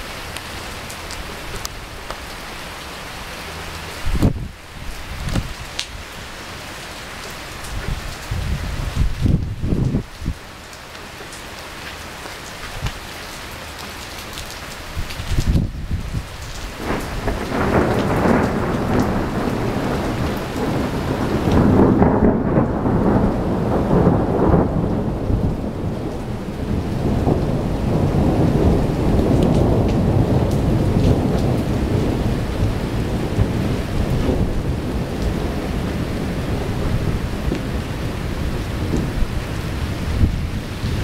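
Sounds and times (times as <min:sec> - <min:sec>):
steady rain: 0:00.0 - 0:41.0
thunder rolling: 0:15.2 - 0:41.0.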